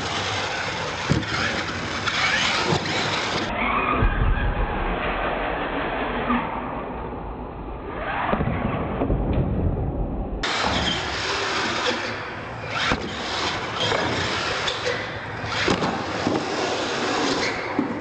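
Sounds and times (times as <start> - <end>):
toy truck motor and tyres: 0.0 - 3.5, 10.4 - 17.8.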